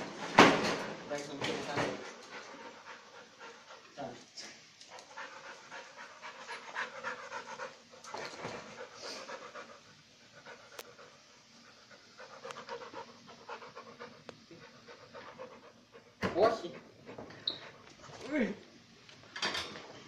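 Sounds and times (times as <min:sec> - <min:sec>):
dog panting: 0:00.0 - 0:18.3.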